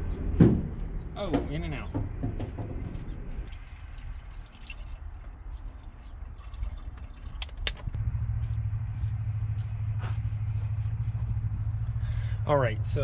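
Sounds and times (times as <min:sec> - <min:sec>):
low engine hum: 0:00.0 - 0:13.0
water pouring from a bottle: 0:03.5 - 0:07.9.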